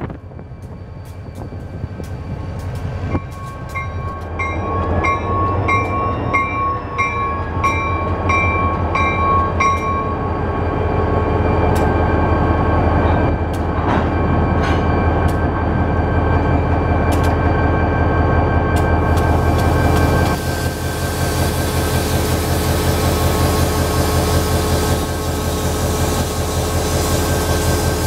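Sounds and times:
locomotive bell ringing: 3.0 - 13.4.

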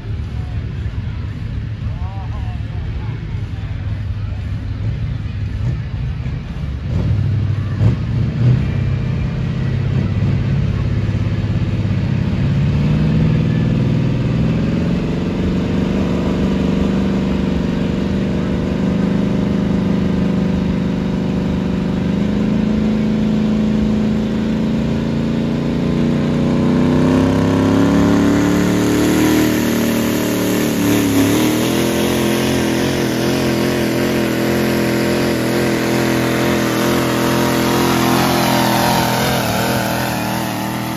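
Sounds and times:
diesel truck engine under load: 2.6 - 40.9.

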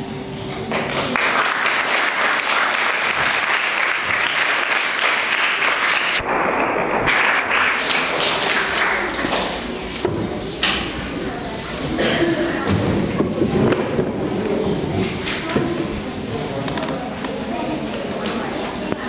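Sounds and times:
audience applauding: 0.8 - 9.8.

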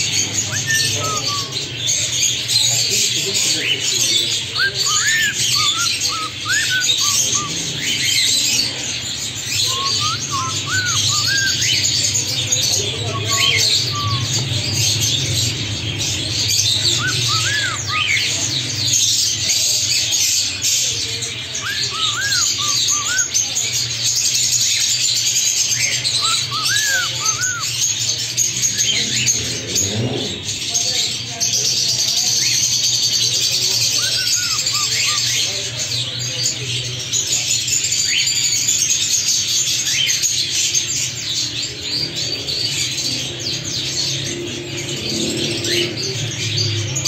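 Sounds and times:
bird chatter: 0.0 - 47.0
cockatiel chirping: 4.6 - 7.5, 9.6 - 11.9.

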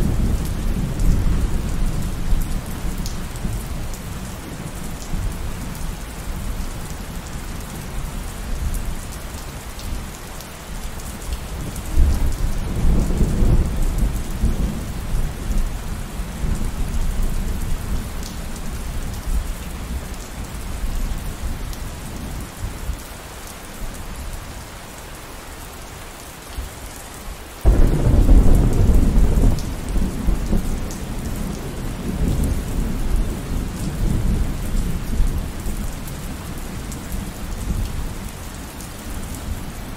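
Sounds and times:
steady rain falling: 0.0 - 39.9
thunder rumbling: 27.6 - 35.2.

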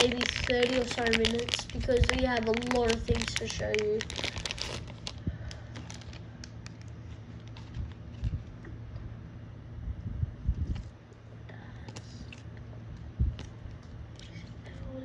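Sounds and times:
plastic wrap crinkling: 0.0 - 8.6.

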